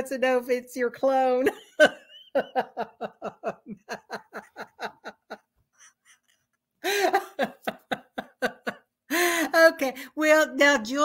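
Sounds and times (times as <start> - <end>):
woman laughing hard: 1.5 - 9.3.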